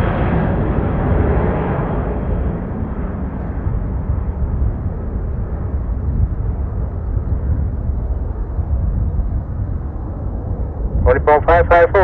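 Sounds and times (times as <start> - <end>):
jet engines rumbling: 0.0 - 12.0
wind buffeting microphone: 0.0 - 12.0.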